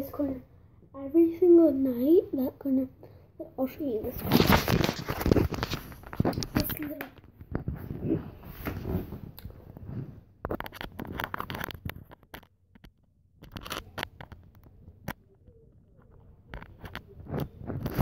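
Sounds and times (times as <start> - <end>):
rustling and scraping of handling: 3.5 - 15.2, 15.9 - 18.0.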